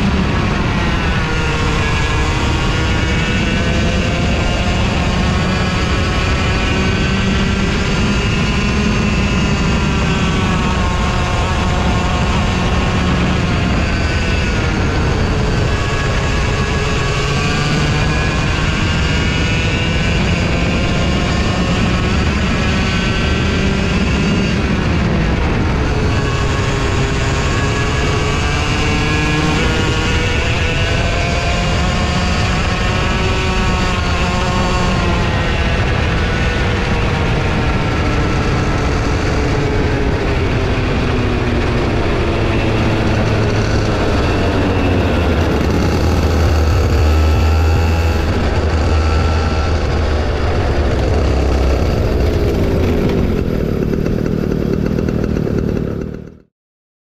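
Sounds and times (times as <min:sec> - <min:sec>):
go-kart engine revving: 0:00.0 - 0:56.5
low rumble: 0:38.2 - 0:56.4.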